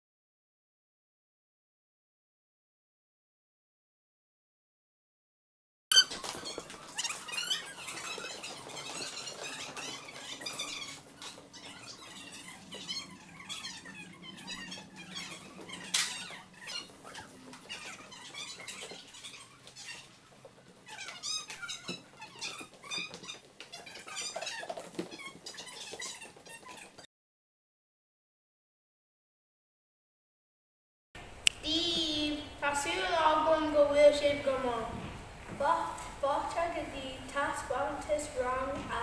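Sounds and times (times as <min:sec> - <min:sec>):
shoe soles squeaking on floor: 0:05.9 - 0:27.1
faint steady hum: 0:31.2 - 0:39.0.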